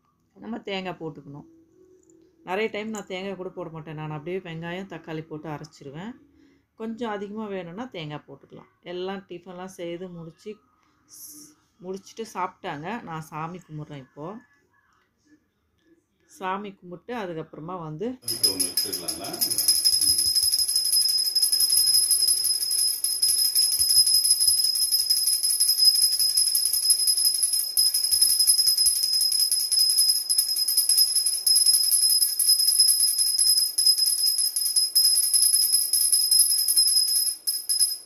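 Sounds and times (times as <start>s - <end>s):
hand bell ringing rapidly: 18.2s - 38.0s.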